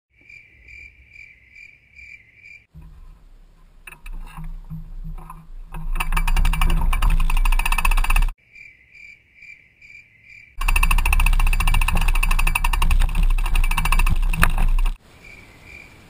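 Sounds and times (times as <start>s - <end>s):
cricket chirping: 0.2s - 2.7s, 7.3s - 12.8s, 13.4s - 16.0s
mountain bike riding dirt trail: 2.8s - 8.3s, 10.6s - 15.0s
rapid ticking: 3.8s - 8.4s, 10.6s - 15.0s.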